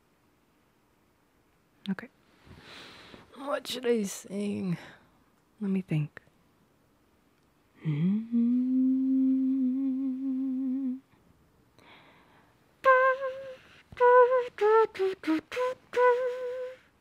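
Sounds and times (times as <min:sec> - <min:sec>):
woman humming: 0:07.8 - 0:11.1.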